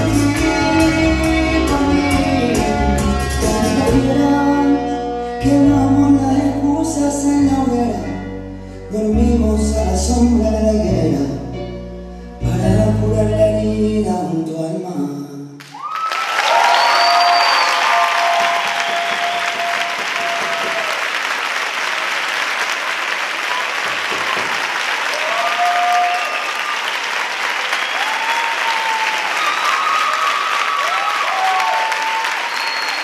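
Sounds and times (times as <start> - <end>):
audience clapping: 15.6 - 33.0
high shouts and whoops: 15.7 - 21.0, 25.1 - 26.7, 27.7 - 33.0.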